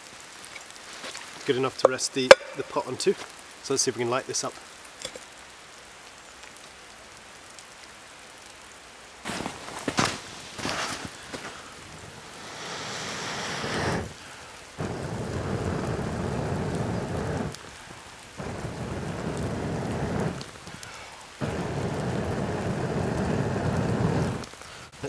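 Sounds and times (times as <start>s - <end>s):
man blowing hard into fire: 10.5s - 25.0s.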